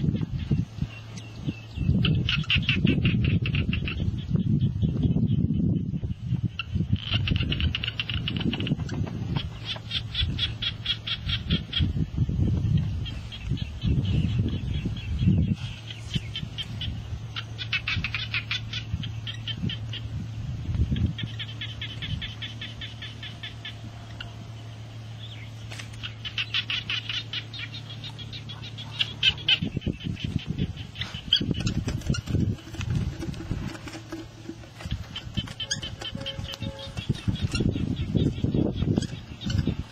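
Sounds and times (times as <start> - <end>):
steady low hum: 0.0 - 39.9
rapid high trilled chirping: 26.0 - 39.9.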